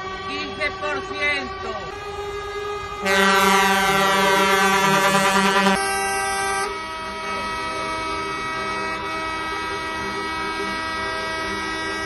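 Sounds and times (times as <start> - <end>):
truck air horns blasting: 2.9 - 12.0.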